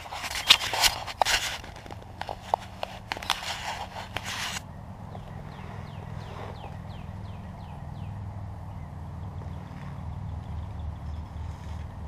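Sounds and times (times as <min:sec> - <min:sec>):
twigs snapping: 0:00.0 - 0:05.4.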